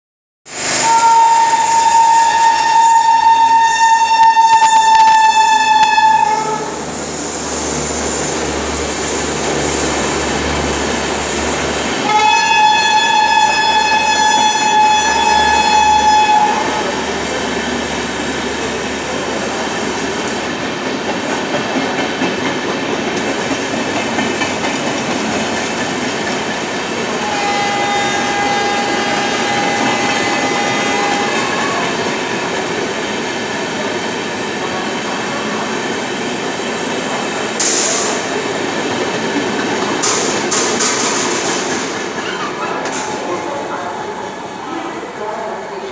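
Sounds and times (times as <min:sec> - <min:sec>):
train wheels rumbling on rails: 0:00.5 - 0:45.9
train horn: 0:00.8 - 0:06.8, 0:12.0 - 0:17.1, 0:27.1 - 0:32.1.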